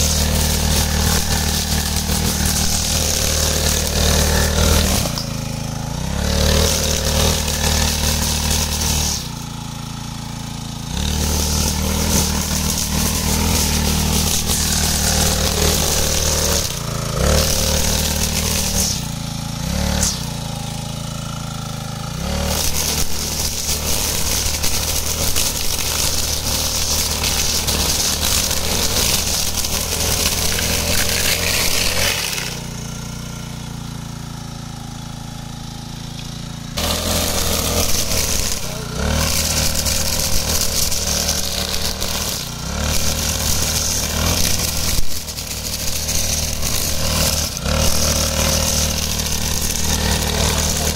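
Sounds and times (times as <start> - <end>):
brush cutter engine running: 0.0 - 50.9
cutting head mowing tall grass: 0.0 - 50.9.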